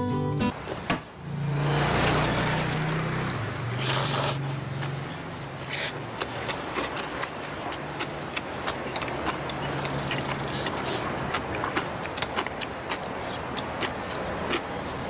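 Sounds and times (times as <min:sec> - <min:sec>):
noodles being slurped: 0:03.7 - 0:04.4, 0:05.6 - 0:15.0.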